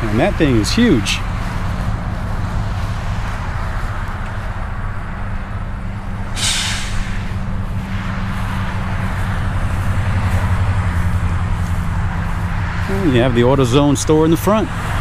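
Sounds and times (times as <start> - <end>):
motor vehicle drone: 0.0 - 15.0
road noise: 0.0 - 15.0
short sharp hiss: 6.4 - 7.4.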